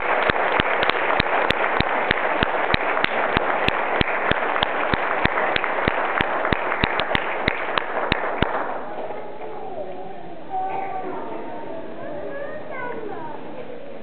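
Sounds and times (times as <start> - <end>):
sharp close claps: 0.0 - 9.5
crowd clapping: 0.0 - 9.6.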